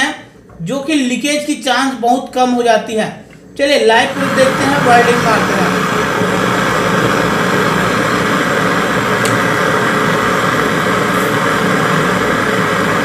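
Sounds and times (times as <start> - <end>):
gas torch flame burning: 3.4 - 13.0.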